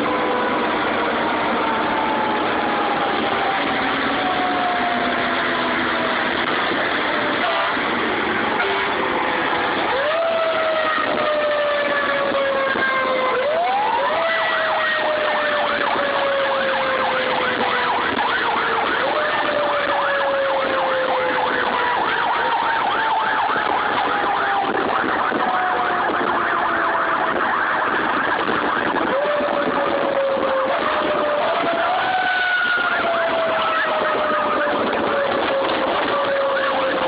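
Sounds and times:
fast-warbling siren: 0.0 - 37.0
road noise: 0.0 - 37.0.

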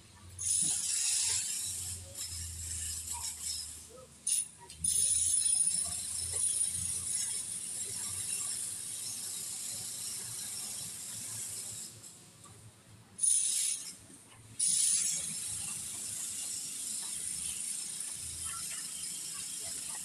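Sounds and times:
welding arc crackling sizzle: 0.4 - 4.4.

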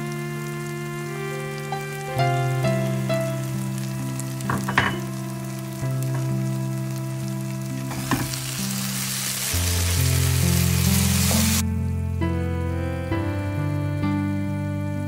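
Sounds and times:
rice sizzling in a pan: 0.0 - 11.7
background music of held chords: 0.0 - 15.0.

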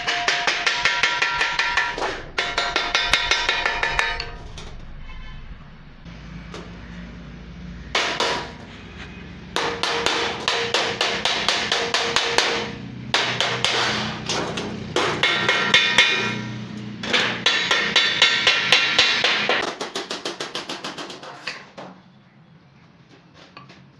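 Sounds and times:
wooden mallet striking sheet metal: 0.0 - 5.8, 7.9 - 8.6, 9.6 - 21.6
sheet metal ringing: 0.0 - 6.1, 9.6 - 19.6.

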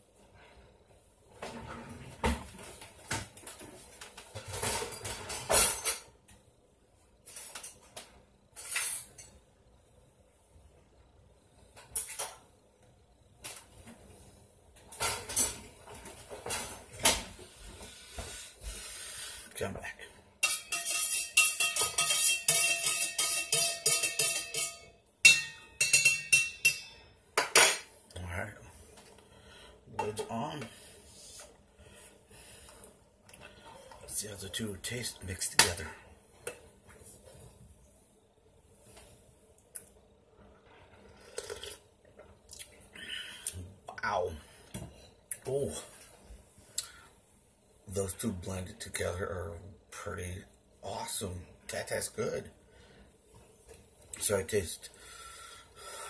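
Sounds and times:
dishes and utensils clattering: 1.4 - 6.2, 14.8 - 17.3, 20.4 - 27.9, 30.0 - 30.5
metal spoon clinking against cup: 20.4 - 27.7.

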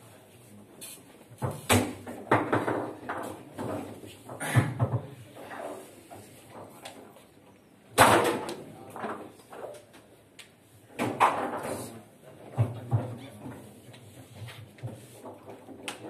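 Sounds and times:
foosball knocks and slams: 1.4 - 4.0, 7.9 - 9.3, 11.0 - 11.8.

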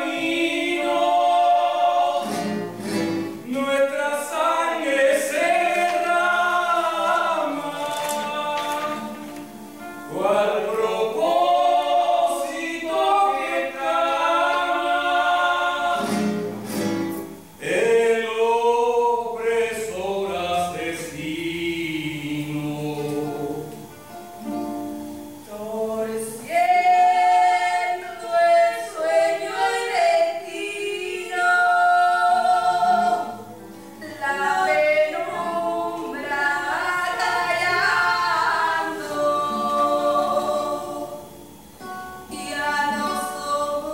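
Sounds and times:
group of voices singing: 0.0 - 16.8, 17.6 - 23.9, 25.4 - 43.9
acoustic guitar: 0.0 - 43.9.

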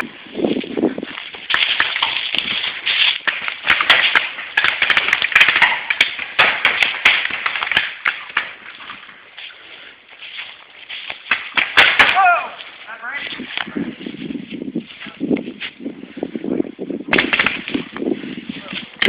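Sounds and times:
footsteps running through dry leaves: 0.1 - 5.8, 8.8 - 15.8.

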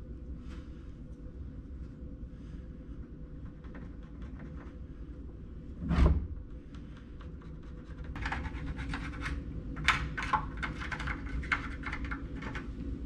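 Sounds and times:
pencil scratching on wood: 7.3 - 9.4.

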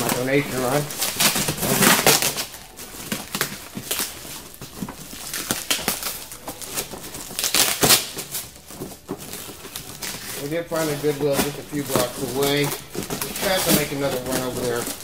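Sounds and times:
cardboard and plastic crinkling: 0.0 - 15.0
packing tape ripping: 0.0 - 15.0.

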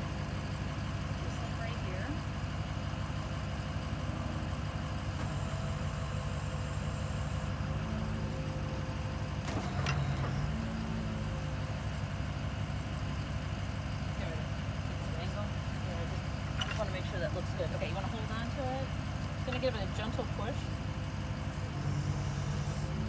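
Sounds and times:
drill rig engine and hydraulics: 0.0 - 23.0.

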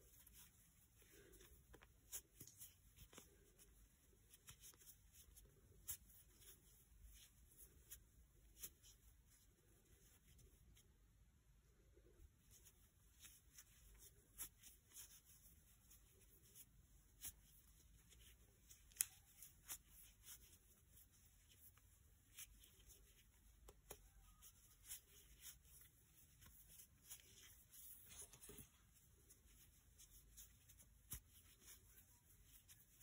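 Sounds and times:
crochet hook clicking and rubbing: 16.0 - 21.7, 22.3 - 28.8, 29.5 - 33.0.

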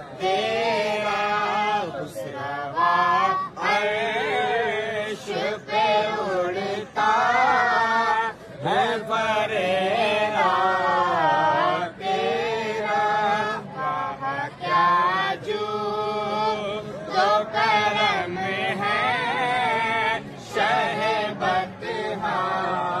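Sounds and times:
breaths: 8.3 - 8.6.

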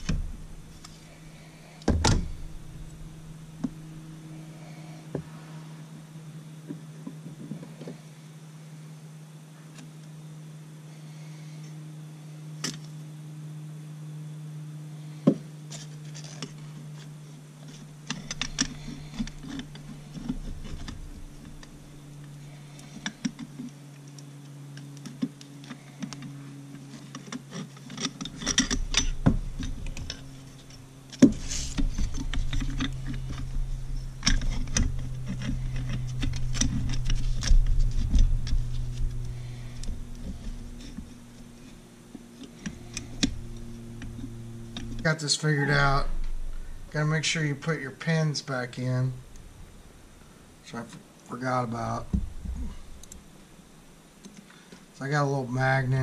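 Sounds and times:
steady low hum: 0.0 - 56.0
metal parts clicking and clinking: 26.9 - 41.1.

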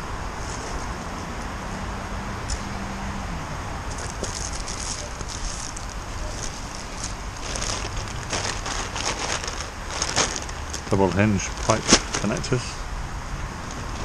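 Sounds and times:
plastic bags rustling: 3.9 - 12.7.

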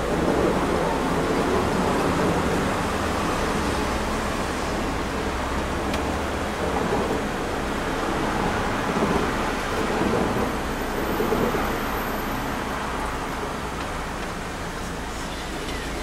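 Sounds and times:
tram wheels on rails: 0.0 - 16.0.

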